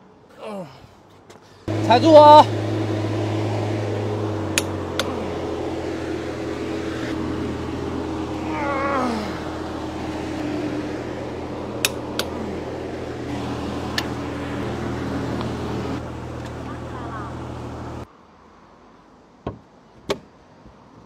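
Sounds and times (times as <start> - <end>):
steady low hum: 1.7 - 18.1.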